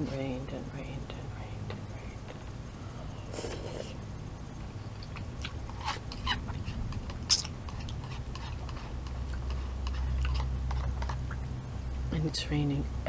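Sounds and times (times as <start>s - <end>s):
wet chewing of noodles: 4.9s - 11.6s.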